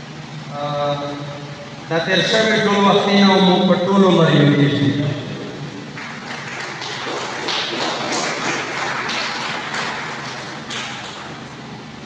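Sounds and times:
audience clapping: 5.9s - 11.7s.

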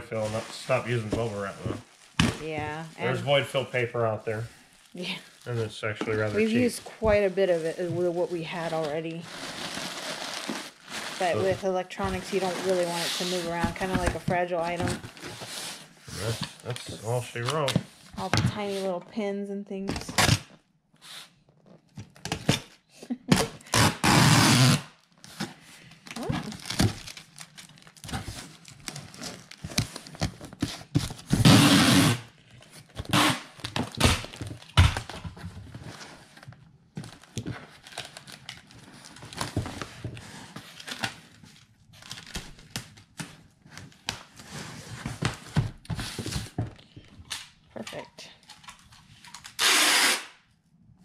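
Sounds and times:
packing tape screeching off tape gun: 9.3s - 11.6s, 23.3s - 25.0s, 31.3s - 32.3s, 33.0s - 35.0s, 49.3s - 50.4s.

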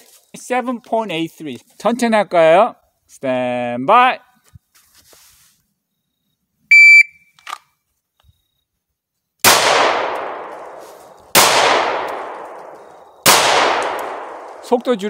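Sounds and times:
shot timer beep: 6.7s - 7.3s
pistol shots: 9.4s - 14.8s.

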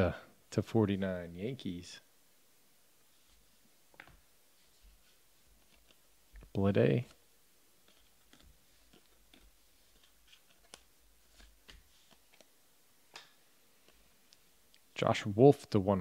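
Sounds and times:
trading cards being flipped: 3.9s - 7.2s, 7.8s - 12.5s.

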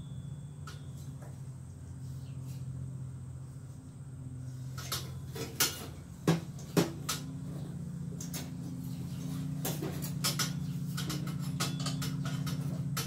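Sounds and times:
steady low hum: 0.0s - 13.0s
metallic clicks and clinks: 10.0s - 13.0s.

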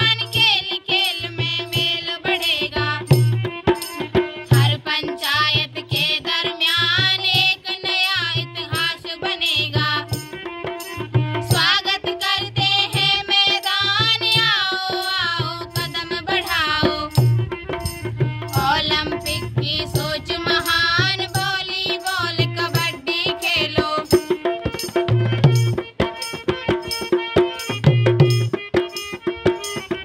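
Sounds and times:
low drum beat: 16.8s - 21.2s.

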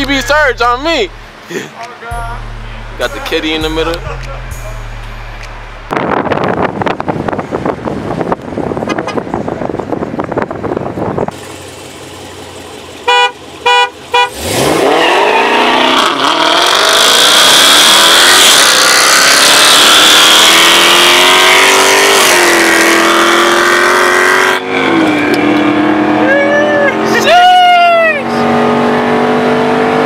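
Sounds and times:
car engine accelerating: 2.1s - 30.0s
car horn honks: 13.0s - 14.7s.

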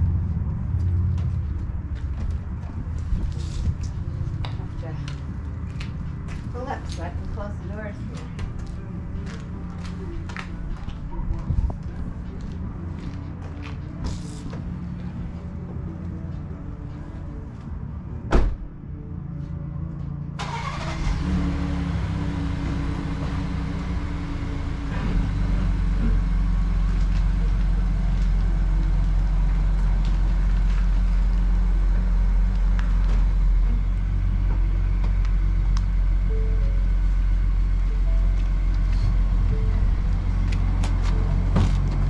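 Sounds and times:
car door shutting: 18.3s - 18.6s
car engine driving off: 20.4s - 42.0s.

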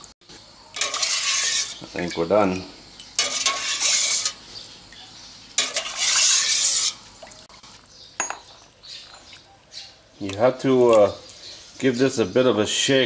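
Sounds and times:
ladle stirring brine in a pot: 0.4s - 7.6s
brine splashing and pouring: 5.6s - 7.5s.

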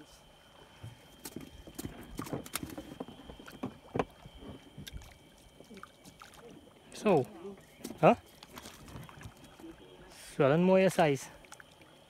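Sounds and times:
hollow knocks in boat: 0.8s - 5.1s.

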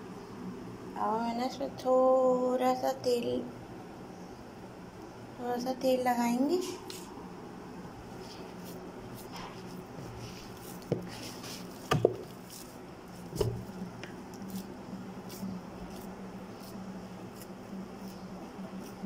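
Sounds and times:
steady low hum: 0.0s - 19.0s
hands squishing dough: 8.1s - 19.0s
sharp knocks: 11.9s - 12.3s.

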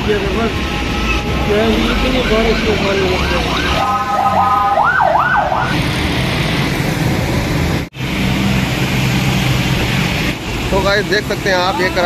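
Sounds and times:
traffic engines running: 0.0s - 12.0s
siren sweeping up and down: 1.8s - 5.8s
tyres hissing on wet road: 5.6s - 12.0s.

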